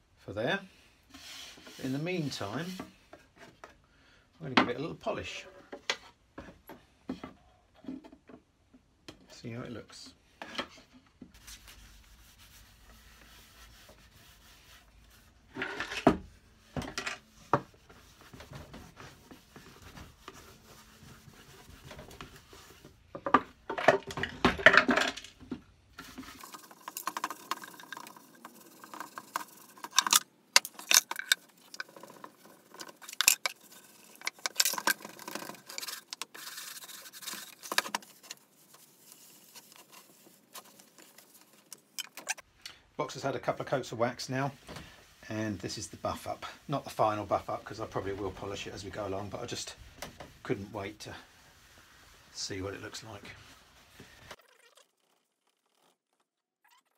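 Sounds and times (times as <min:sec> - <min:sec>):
cloth scrubbing wood: 0:11.4 - 0:15.5, 0:17.4 - 0:23.1, 0:26.0 - 0:42.3, 0:44.0 - 0:54.4.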